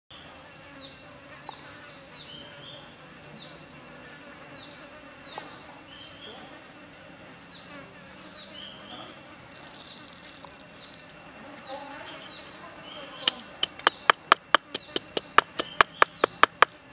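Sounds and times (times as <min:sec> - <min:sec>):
insects buzzing: 0:00.1 - 0:16.9
peppercorns rattling into mortar: 0:09.5 - 0:11.2.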